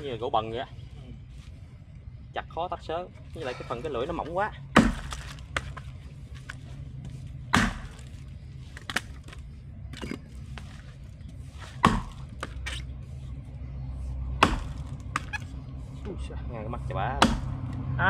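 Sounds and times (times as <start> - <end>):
axe chopping into a log: 4.8 - 5.7, 7.5 - 8.0, 11.8 - 12.5, 14.4 - 15.3, 17.2 - 17.6.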